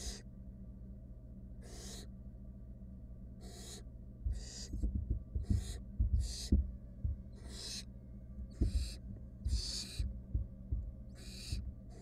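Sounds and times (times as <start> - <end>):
owl nestlings hissing: 0.0 - 0.2, 1.6 - 2.1, 3.4 - 4.8, 5.4 - 6.6, 7.3 - 7.9, 8.5 - 10.1, 11.1 - 12.0
low steady hum: 0.0 - 12.0.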